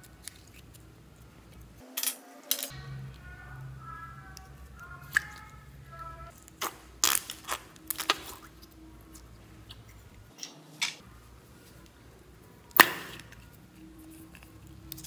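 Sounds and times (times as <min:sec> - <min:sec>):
slime squishing: 0:04.1 - 0:10.4.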